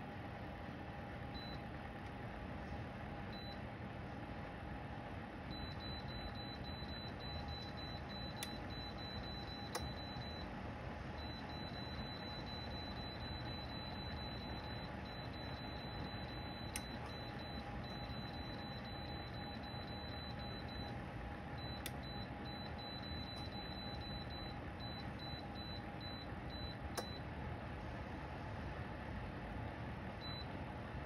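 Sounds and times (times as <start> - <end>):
faint steady whine: 0.0 - 31.0
heater fan blowing: 0.0 - 31.0.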